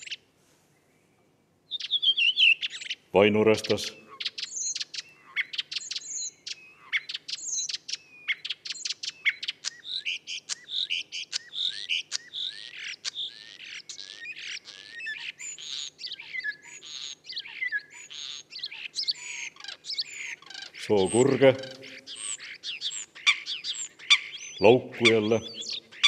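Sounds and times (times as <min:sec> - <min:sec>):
starling song: 0:24.6 - 0:26.0.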